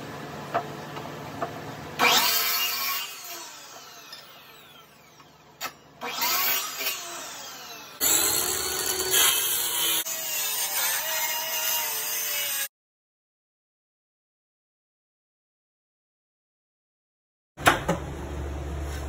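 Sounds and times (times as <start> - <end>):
mitre saw cutting wood: 2.0 - 12.7.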